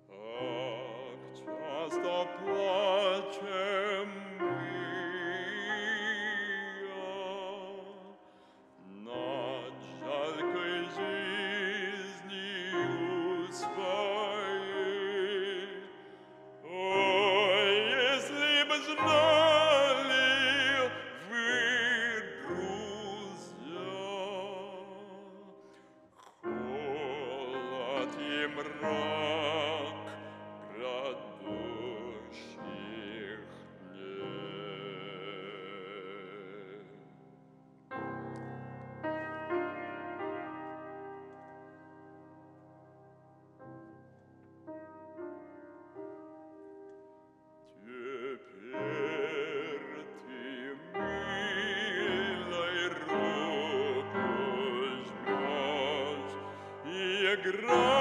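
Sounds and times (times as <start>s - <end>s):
piano accompaniment: 0.0s - 58.0s
trained voice singing: 47.8s - 58.0s.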